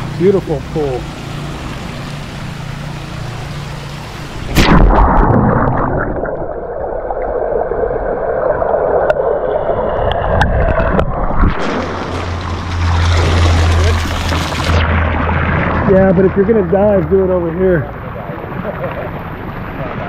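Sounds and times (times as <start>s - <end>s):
underwater gurgling and bubbling: 4.3s - 16.8s
splash into water: 4.4s - 6.7s, 10.1s - 16.3s.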